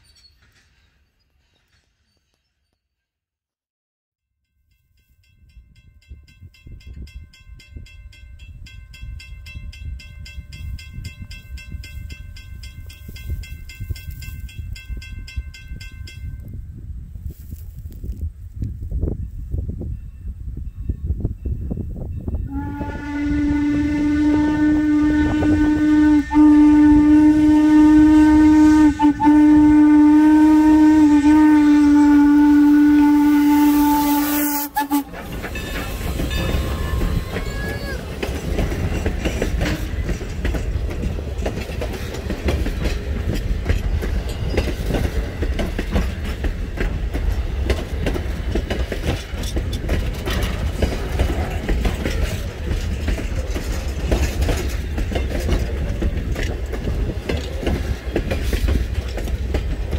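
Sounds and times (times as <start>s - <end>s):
crossing warning bell ringing: 4.4s - 16.6s, 19.2s - 23.8s, 34.7s - 37.9s, 42.0s - 47.7s
low train rumble: 5.0s - 59.9s
steam locomotive whistle blasts: 22.4s - 38.0s.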